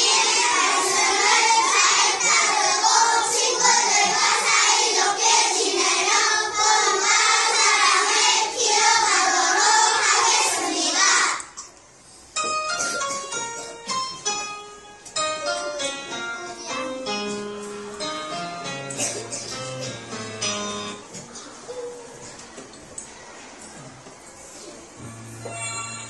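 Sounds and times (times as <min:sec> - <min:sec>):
children singing in unison: 0:00.0 - 0:11.5
short high instrument notes: 0:25.0 - 0:26.0.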